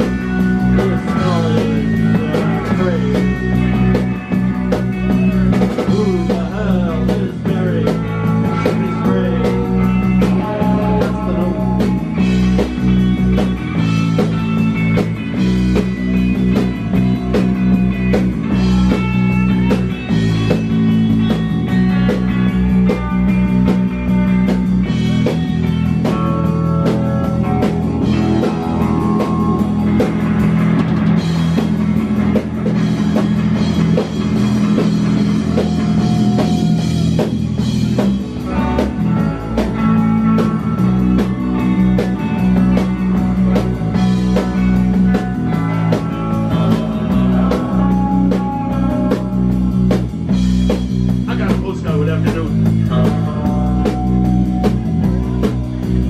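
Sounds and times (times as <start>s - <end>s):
drum kit: 0.0s - 56.0s
electric bass: 0.0s - 56.0s
electric guitars: 0.0s - 56.0s.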